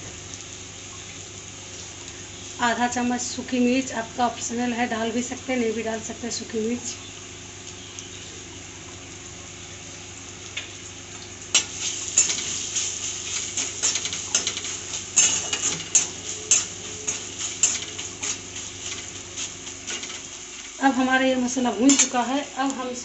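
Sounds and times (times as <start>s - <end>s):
spices frying in oil: 0.0s - 23.0s
metal spatula scraping a pan: 11.5s - 20.3s.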